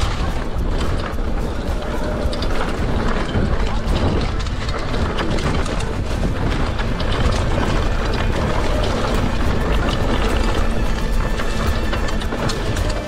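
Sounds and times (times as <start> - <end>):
bike rattling and clattering: 0.0 - 13.0
bike tyre rumble: 0.0 - 13.0
wind buffeting microphone: 0.0 - 13.0.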